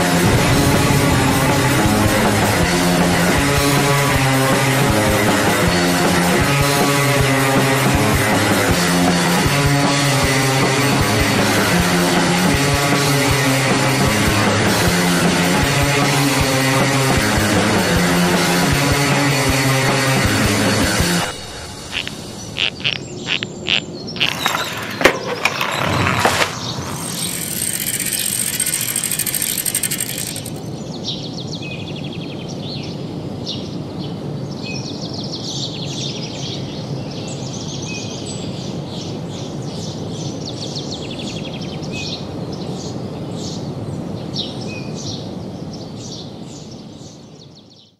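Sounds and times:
small birds chirping: 0:21.8 - 0:26.9
sharp clicks and knocks: 0:22.0 - 0:30.7.

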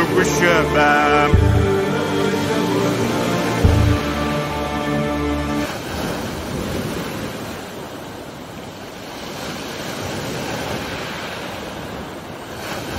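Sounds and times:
waves breaking on pebble beach: 0:05.6 - 0:12.9.

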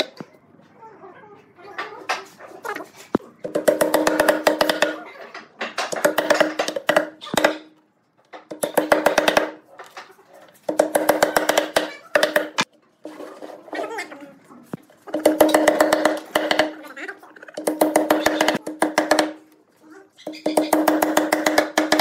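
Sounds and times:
wooden mallet tapping wood: 0:20.4 - 0:22.0.

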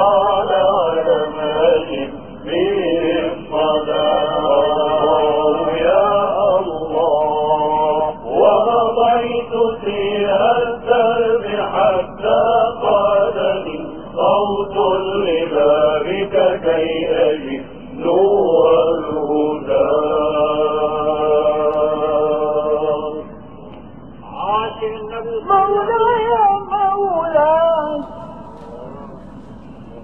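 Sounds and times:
melodic vocal chanting: 0:00.0 - 0:23.4, 0:24.2 - 0:30.0.

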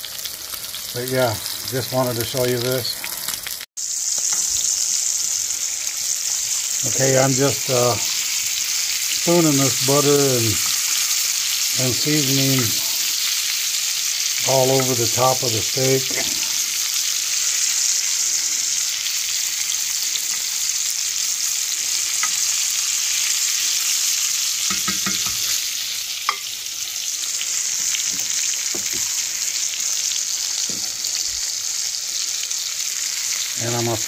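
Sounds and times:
steak sizzling in a skillet: 0:00.0 - 0:34.0.

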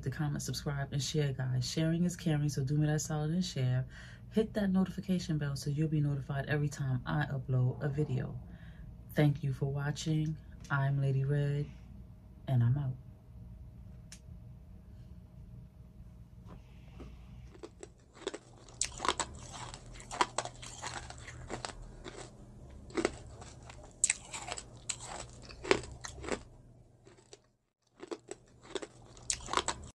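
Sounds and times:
crunchy biting and chewing: 0:17.4 - 0:29.9.

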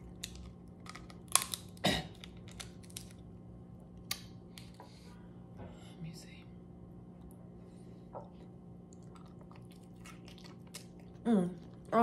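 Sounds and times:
crab shell cracking: 0:00.2 - 0:03.2.

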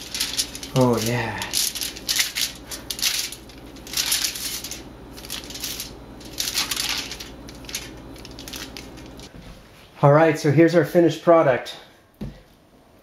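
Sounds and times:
aluminum foil crinkling: 0:00.0 - 0:09.4.

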